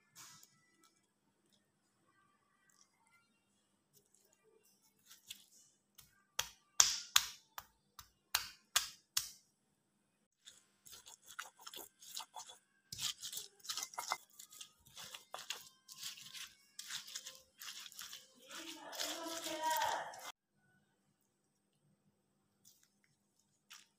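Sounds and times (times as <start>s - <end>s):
pestle grinding and scraping: 10.4s - 20.4s.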